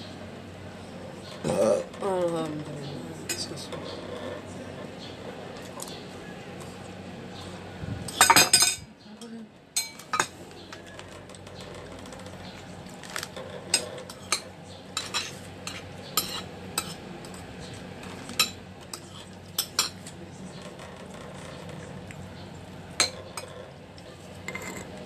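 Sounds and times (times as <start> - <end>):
metal spoon scraping a plate: 13.3 - 20.0, 24.4 - 25.0.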